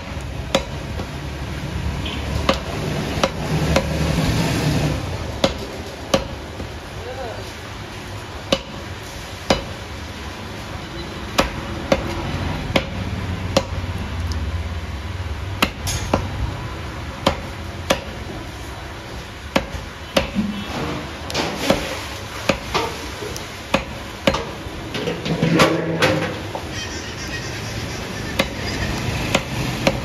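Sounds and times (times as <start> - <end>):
cleaver chopping meat on wood: 0.0 - 1.1, 2.4 - 4.0, 5.4 - 6.4, 8.5 - 8.8, 9.5 - 9.8, 11.4 - 13.0, 13.6 - 13.8, 15.6 - 16.3, 17.2 - 18.2, 19.5 - 20.5, 22.5 - 22.8, 23.7 - 24.6, 28.4 - 28.6, 29.3 - 30.0.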